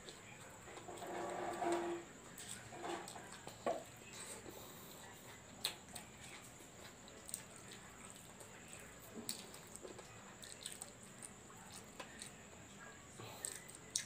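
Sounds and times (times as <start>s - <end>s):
person chewing with wet smacking: 2.4s - 14.0s.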